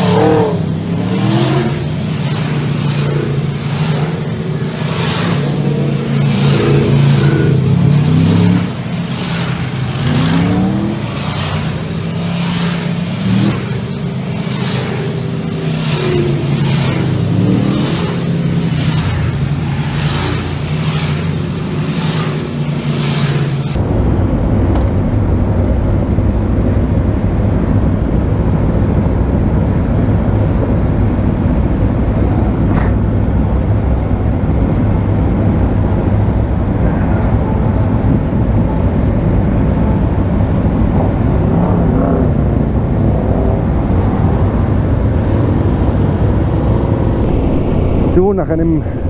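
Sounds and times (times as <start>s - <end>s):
wind and road noise: 0.0s - 49.0s.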